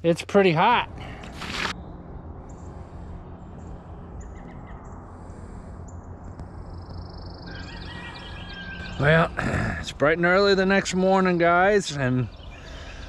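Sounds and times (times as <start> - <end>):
low background hum: 0.6 - 13.0
birds chirping: 0.7 - 13.0
bird trilled song: 6.7 - 9.1, 10.8 - 13.0.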